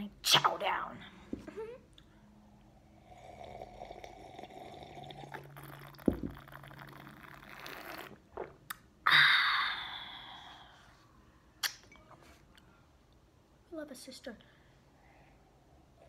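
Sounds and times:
person gulping a drink: 3.0 - 8.9.

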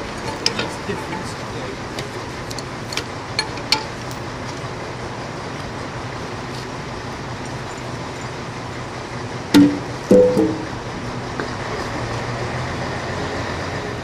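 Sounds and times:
diesel engine idling: 0.0 - 14.0.

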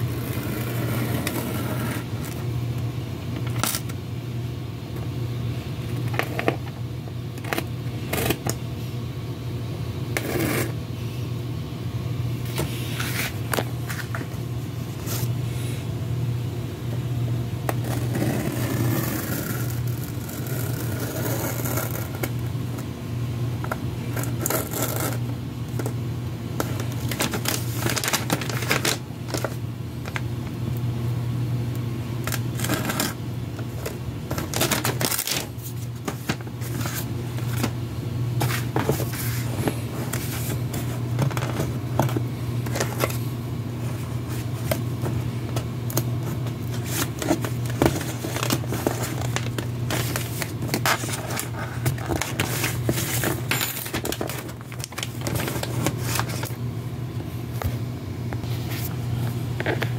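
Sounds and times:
steady low hum: 0.0 - 59.9
paper rustling and crinkling: 12.5 - 14.4, 26.6 - 30.2, 32.3 - 37.8, 38.4 - 43.2, 43.8 - 56.6.

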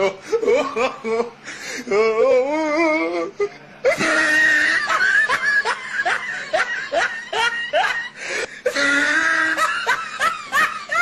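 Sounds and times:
person laughing: 0.0 - 11.0.

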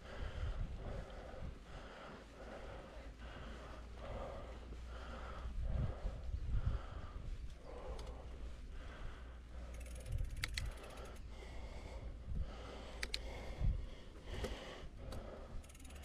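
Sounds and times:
wind rumble on microphone: 0.0 - 2.6, 3.4 - 15.6
bicycle freewheel clicking: 9.6 - 11.2, 15.6 - 16.0.

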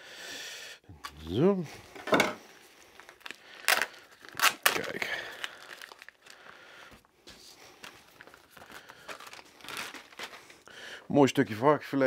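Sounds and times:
plastic packaging crinkling: 2.4 - 6.7, 7.6 - 10.8.

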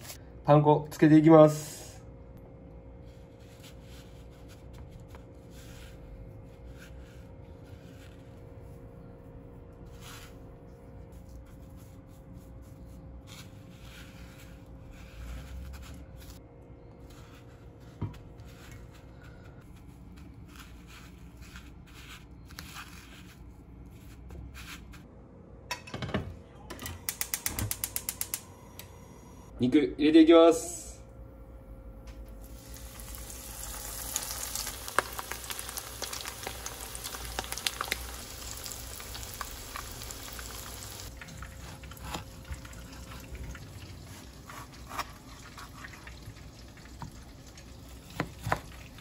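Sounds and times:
faint steady hum: 25.1 - 45.4.

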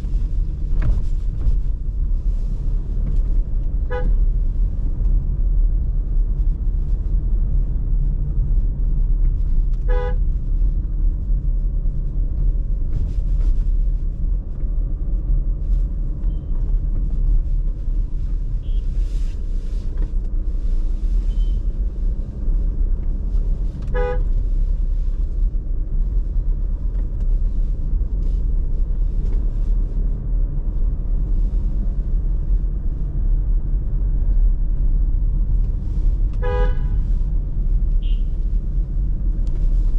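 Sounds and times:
car driving low rumble: 0.0 - 39.9
short car horn toot: 36.4 - 37.0, 38.0 - 38.3.

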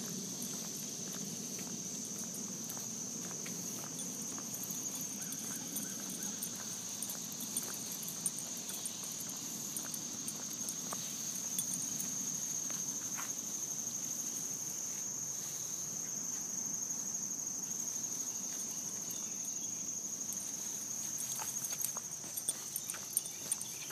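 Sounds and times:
insects trilling: 0.0 - 23.9.

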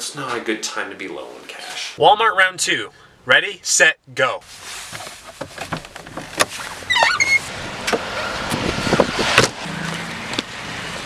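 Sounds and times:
car door opening: 4.9 - 9.6.

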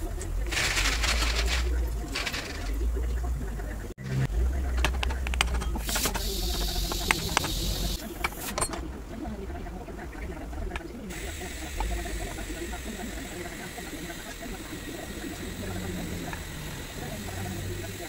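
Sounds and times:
metal parts clicking and clinking: 0.2 - 2.8.

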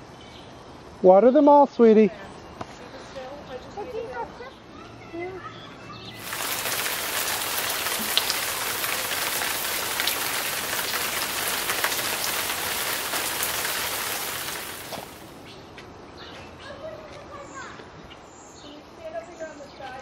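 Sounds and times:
water pattering onto soil and leaves: 6.2 - 15.4.

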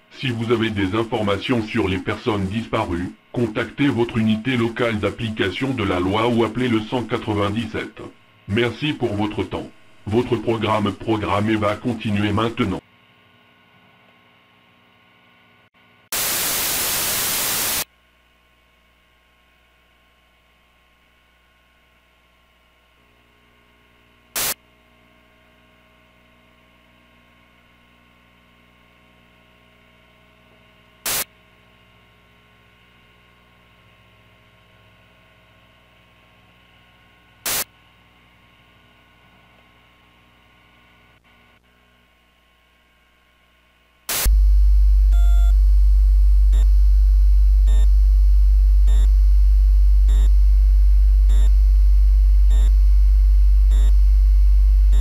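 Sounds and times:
faint hum with steady tones: 0.0 - 55.0
static crackles: 16.1 - 17.9, 24.3 - 24.6, 31.0 - 31.4, 37.4 - 37.8, 44.1 - 55.0
television static hiss: 16.1 - 17.9, 24.3 - 24.6, 31.0 - 31.4, 37.4 - 37.8, 44.0 - 44.4
loud low-pitched tone: 44.2 - 55.0.

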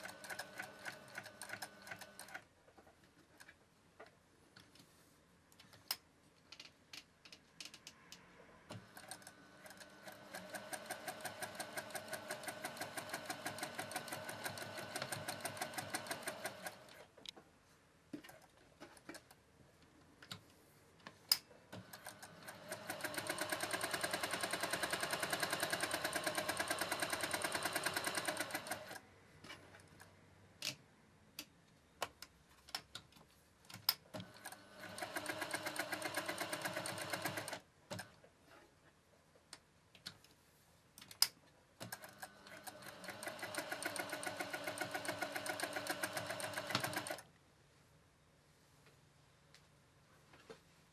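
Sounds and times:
sewing machine stitching: 0.0 - 2.4, 8.7 - 17.1, 21.8 - 29.0, 34.2 - 38.2, 41.8 - 47.2.

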